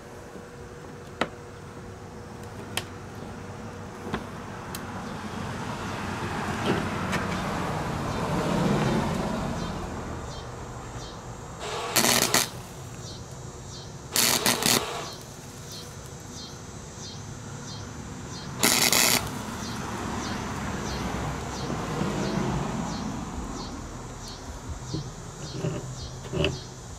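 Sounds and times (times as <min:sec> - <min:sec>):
welder arc crackling: 0:11.6 - 0:13.4, 0:14.0 - 0:16.2, 0:18.5 - 0:19.8.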